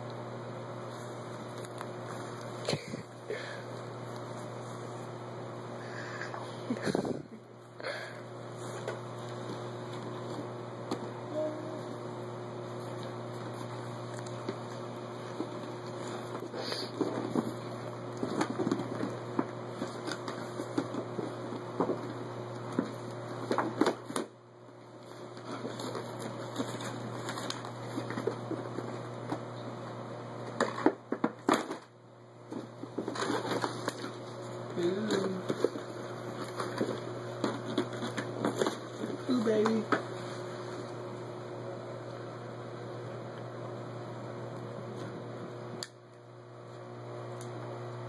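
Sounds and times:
steady low hum: 0:00.0 - 0:48.0
packaging rustling and clicking: 0:32.5 - 0:34.3.

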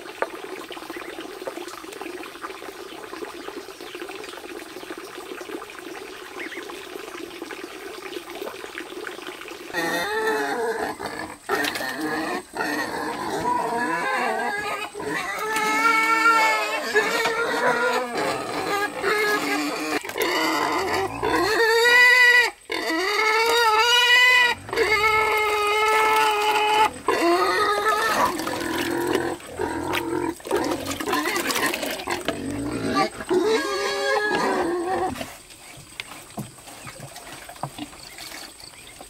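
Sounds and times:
pigs squealing: 0:09.7 - 0:35.4.

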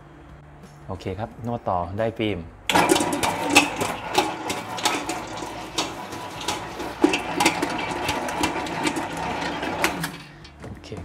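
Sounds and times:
mixer motor hum: 0:02.7 - 0:10.6
dough slapping against bowl: 0:02.8 - 0:10.2.

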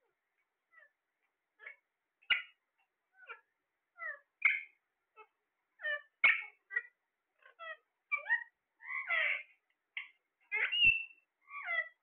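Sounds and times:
parakeets squawking: 0:01.6 - 0:02.6, 0:03.2 - 0:04.8, 0:05.8 - 0:12.0.

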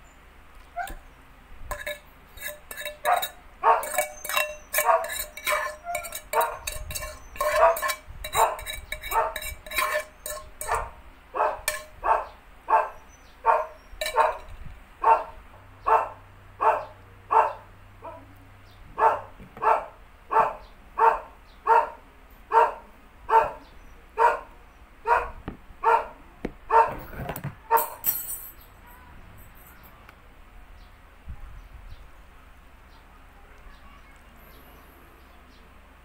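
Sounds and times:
dog barking: 0:03.1 - 0:04.1, 0:04.8 - 0:05.2, 0:07.5 - 0:07.8, 0:08.4 - 0:09.4, 0:10.7 - 0:14.4, 0:15.0 - 0:18.3, 0:19.0 - 0:27.0.

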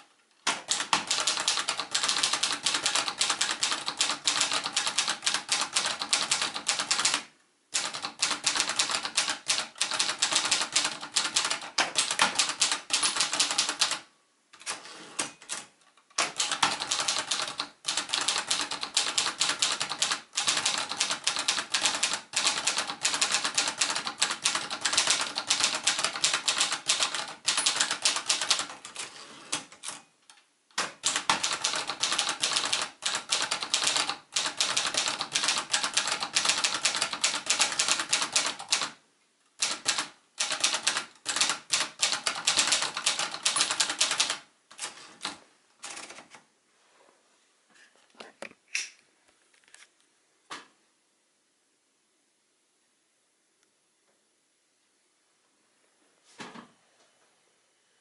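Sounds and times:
manual typewriter key clacks: 0:07.8 - 0:14.0, 0:14.6 - 0:29.1, 0:30.7 - 0:38.9, 0:39.6 - 0:46.2.

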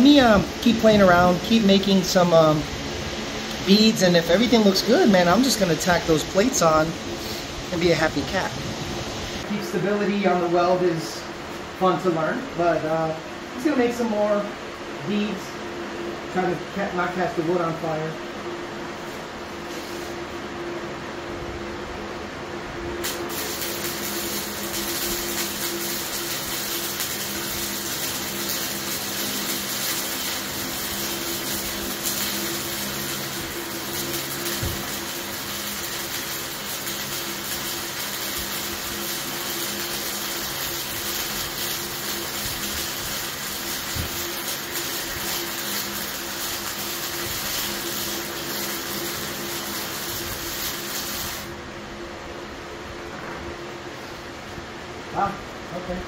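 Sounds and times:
welding arc crackling: 0:00.0 - 0:09.5, 0:23.0 - 0:51.6
welder low hum: 0:00.0 - 0:56.0.

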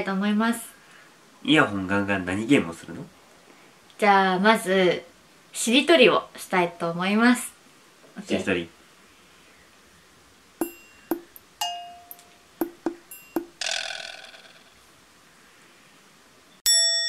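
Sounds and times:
bell-like ding: 0:10.6 - 0:13.7, 0:16.7 - 0:17.0
ringing plinks: 0:10.6 - 0:13.9.

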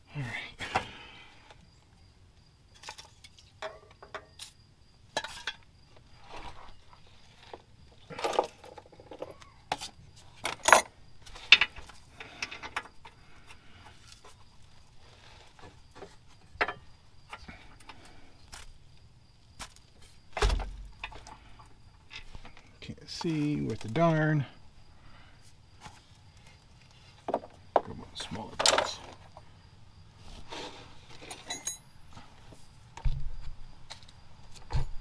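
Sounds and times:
metal tools clinking: 0:10.4 - 0:11.8, 0:28.5 - 0:29.4, 0:31.2 - 0:31.9.

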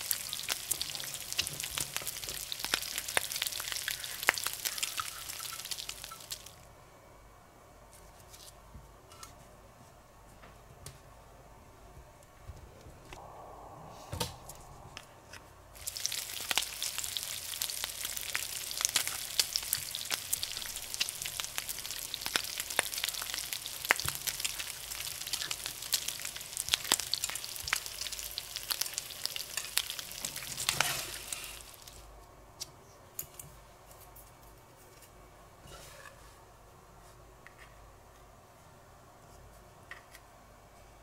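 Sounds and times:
food sizzling in hot pan: 0:00.0 - 0:06.6, 0:15.8 - 0:32.0.

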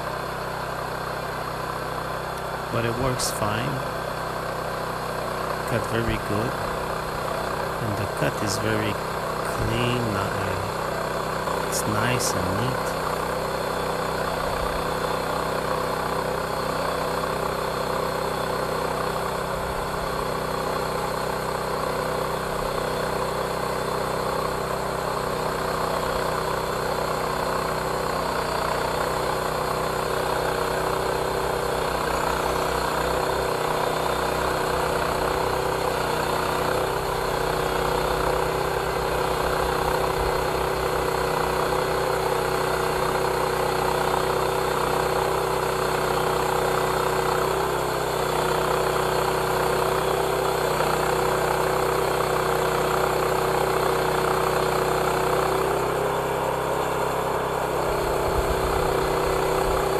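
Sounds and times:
sawmill engine running: 0:00.0 - 0:59.9
band saw cutting log: 0:27.3 - 0:45.4.

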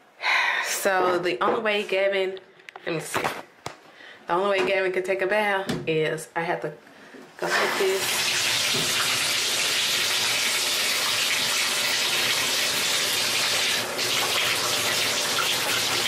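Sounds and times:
water pouring into bathtub: 0:07.4 - 0:16.0.

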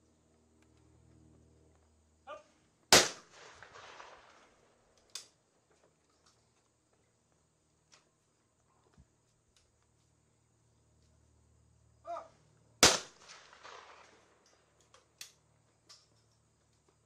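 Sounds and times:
loud shotgun shot: 0:02.9 - 0:04.4, 0:12.8 - 0:14.2.

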